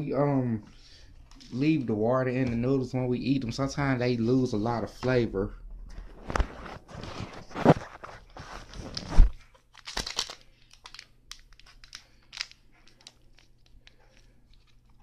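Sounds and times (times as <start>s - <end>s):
plastic packet crinkling and tearing: 6.2s - 15.0s.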